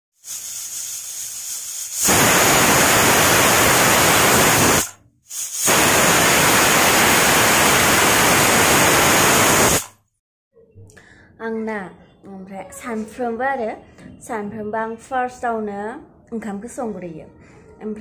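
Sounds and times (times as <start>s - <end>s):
pressure cooker whistle hissing: 0.2s - 10.0s.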